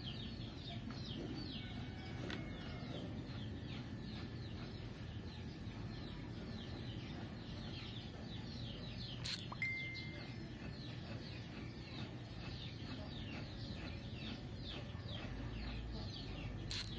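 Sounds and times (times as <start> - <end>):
birds chirping: 0.0 - 16.9
low steady hum: 0.0 - 16.9
sharp click: 9.2 - 9.6, 16.7 - 16.9
high steady tone: 9.3 - 10.8.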